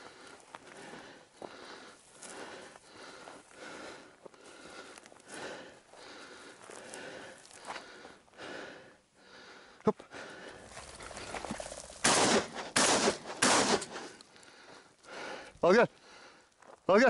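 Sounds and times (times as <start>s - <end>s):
faint footsteps in dry grass: 0.0s - 8.4s, 10.3s - 17.0s
shotgun shots: 12.0s - 14.0s.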